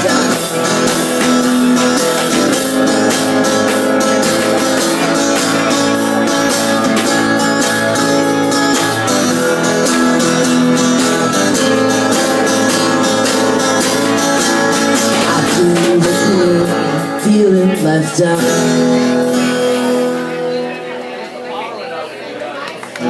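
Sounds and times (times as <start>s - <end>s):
drum and cymbal beat: 0.0s - 17.4s
acoustic guitar strumming: 0.0s - 23.0s.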